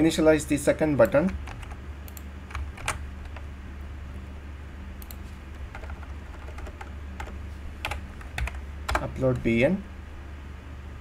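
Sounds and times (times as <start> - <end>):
low electrical hum: 0.0 - 11.0
computer keyboard keystrokes: 1.0 - 3.4, 5.0 - 9.1.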